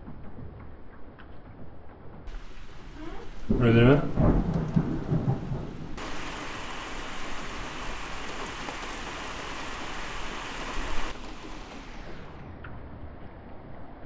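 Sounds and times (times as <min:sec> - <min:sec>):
heavy rain hissing: 0:02.3 - 0:12.4.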